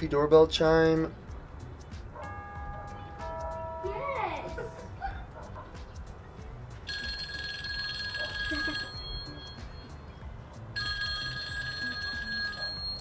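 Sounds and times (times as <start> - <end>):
electronic doorbell chime: 2.3 - 4.2, 6.9 - 10.0, 10.8 - 13.0.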